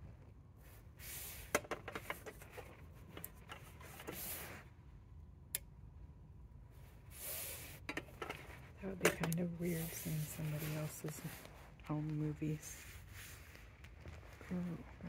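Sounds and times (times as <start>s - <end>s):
rustling: 8.2s - 15.0s.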